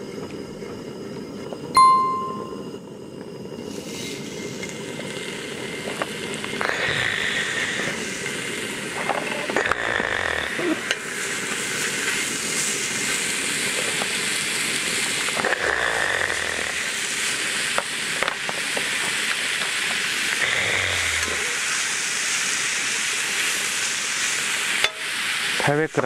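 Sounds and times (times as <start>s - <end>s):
meat sizzling on a griddle: 3.1s - 26.0s.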